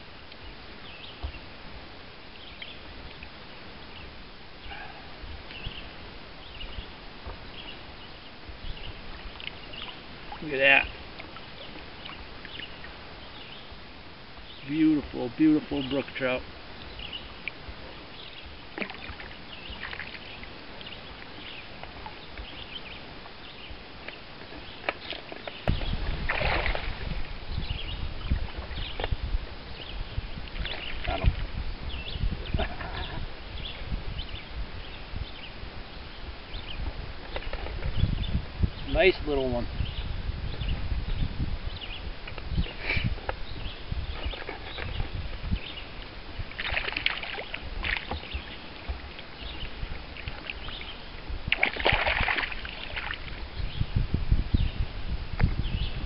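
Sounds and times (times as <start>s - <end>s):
steady outdoor hiss: 0.0s - 56.0s
birds chirping: 3.8s - 13.8s, 14.4s - 46.1s, 46.7s - 51.1s
water splashing and dripping: 18.7s - 20.5s, 24.8s - 27.4s, 46.4s - 53.4s
water sloshing: 18.7s - 22.9s, 24.0s - 29.2s, 30.4s - 31.6s, 45.9s - 53.6s
microphone handling rumble: 25.5s - 47.0s, 47.6s - 56.0s
low bumps near microphone: 25.6s - 29.4s.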